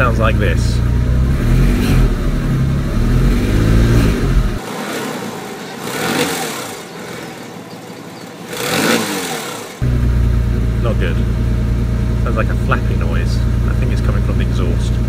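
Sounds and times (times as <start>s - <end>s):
car engine revving: 0.0s - 15.0s
flapping exhaust: 0.0s - 15.0s.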